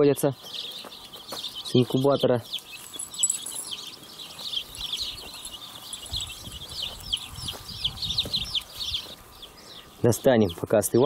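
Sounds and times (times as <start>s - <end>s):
chicks peeping: 0.0s - 11.0s.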